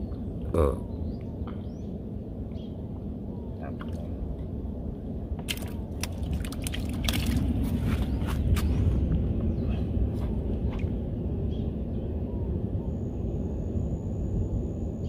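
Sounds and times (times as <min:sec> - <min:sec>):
low steady rumble: 0:00.0 - 0:15.0
fishing line crackles and wet taps: 0:05.4 - 0:08.7.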